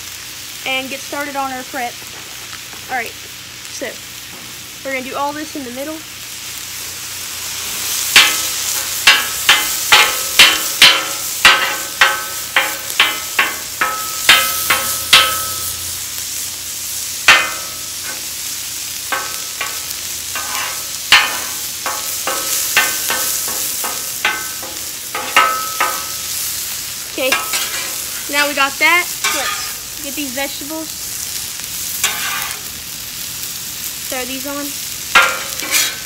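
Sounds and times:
steak sizzling: 0.0 - 36.0
metal spatula striking griddle: 7.8 - 16.0, 17.2 - 18.4, 19.0 - 29.8, 32.0 - 32.7, 35.1 - 36.0.

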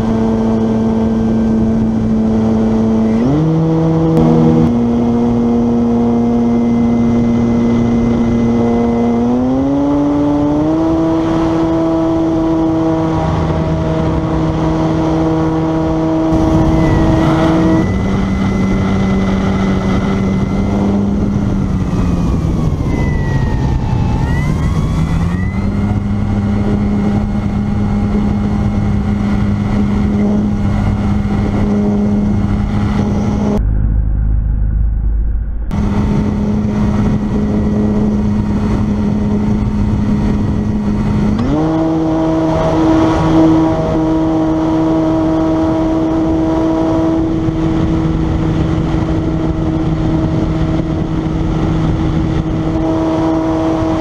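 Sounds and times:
paraglider engine and propeller: 0.0 - 33.7, 35.7 - 54.0
low rumble: 4.0 - 8.6, 16.2 - 41.3.

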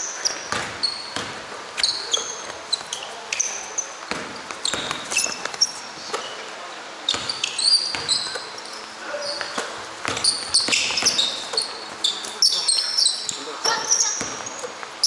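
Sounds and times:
sneakers squeaking: 0.0 - 15.0
basketball bouncing: 0.3 - 3.0, 4.0 - 6.2, 7.1 - 8.5, 9.4 - 12.0, 13.7 - 14.8.

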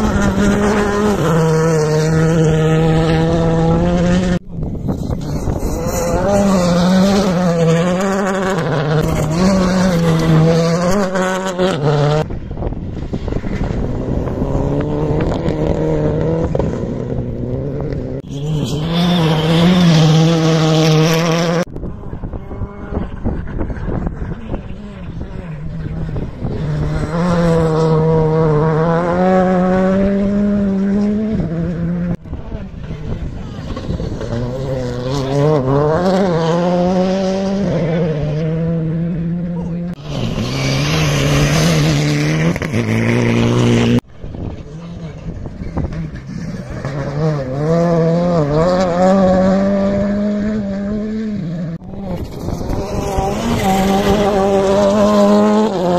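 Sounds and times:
rally car engine at high revs: 0.0 - 55.9.

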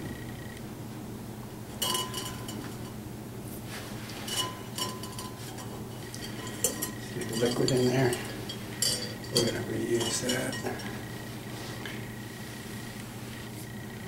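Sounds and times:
low steady hum: 0.0 - 14.0
metal clinking against glass bowl: 1.8 - 3.0, 4.2 - 11.3.

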